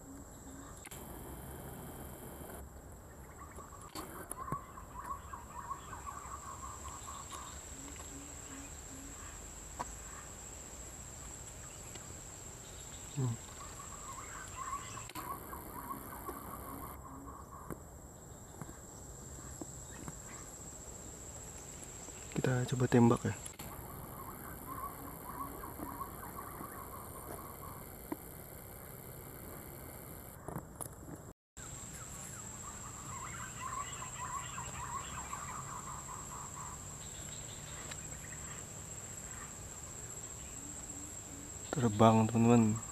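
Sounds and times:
birds chirping: 0.0 - 30.5, 31.6 - 42.9
insect drone: 0.0 - 30.5, 31.6 - 42.9
short wavering calls: 3.4 - 10.4, 13.0 - 17.7, 22.5 - 30.3, 31.6 - 42.9.

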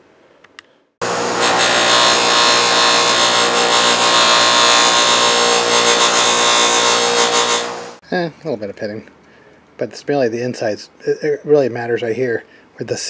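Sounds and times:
bench grinder grinding metal: 1.0 - 8.0
grinder motor hum: 1.0 - 8.0.

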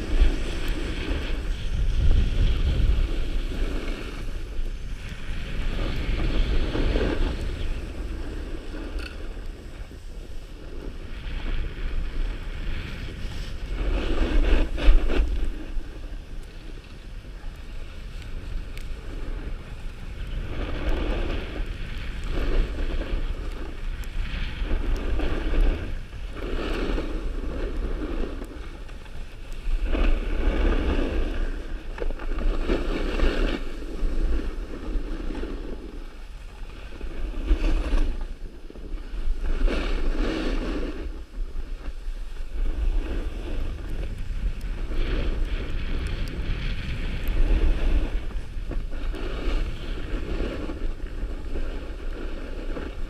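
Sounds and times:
skis scraping over snow: 0.0 - 53.0
wind rumble on microphone: 0.0 - 53.0.

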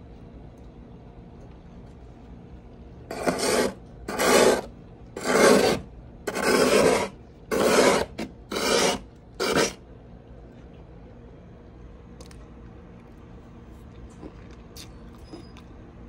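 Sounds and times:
frost scraping in freezer: 3.1 - 9.8.

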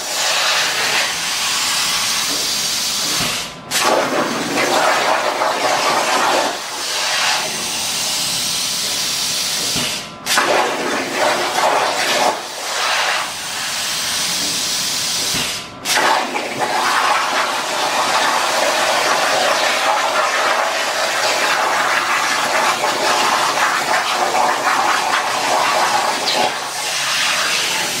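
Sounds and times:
plasma torch hissing: 0.0 - 8.2, 8.8 - 14.4.

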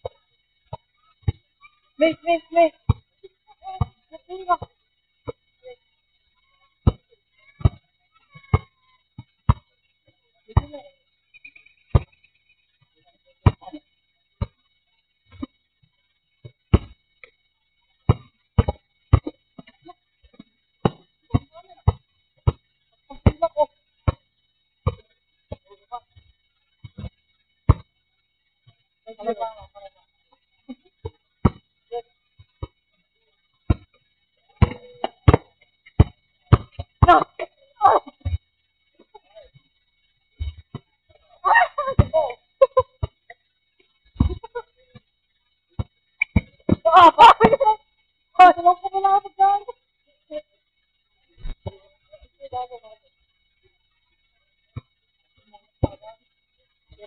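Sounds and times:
basketball bouncing on asphalt: 6.8 - 9.7, 11.9 - 12.2, 16.4 - 17.0, 18.1 - 19.7, 20.8 - 22.7, 24.8 - 27.9, 31.4 - 31.7, 33.7 - 34.0, 34.6 - 37.2.

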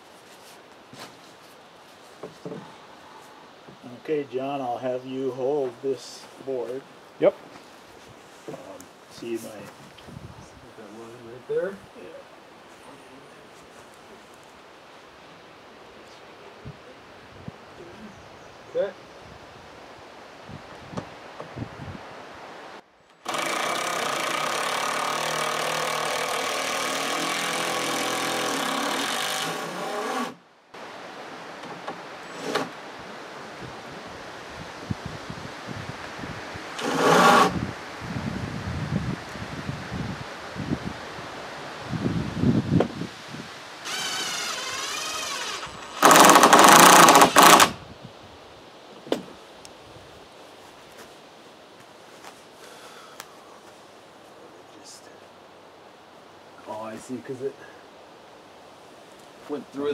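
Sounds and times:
power drill running: 23.2 - 30.4, 36.8 - 37.5, 43.8 - 47.8.

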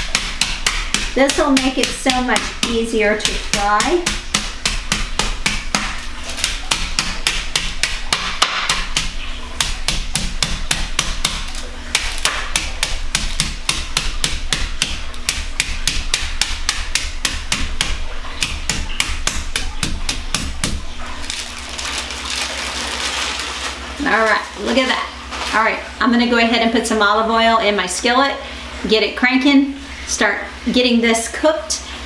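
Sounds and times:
meat mallet pounding: 0.0 - 21.6.

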